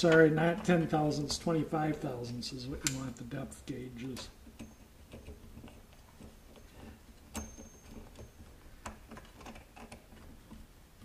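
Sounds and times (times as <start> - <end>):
clicks and taps of handling: 4.0 - 11.0
high metallic ring: 6.6 - 8.5.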